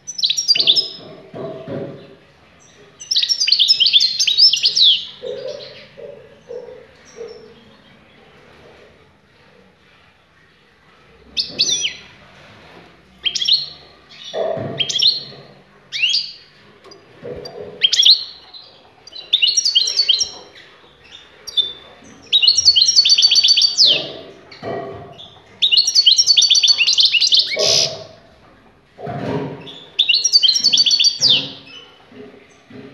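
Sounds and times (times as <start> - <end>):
goldfinch singing: 3.0 - 5.8, 15.9 - 24.2, 25.6 - 28.0, 30.0 - 31.9.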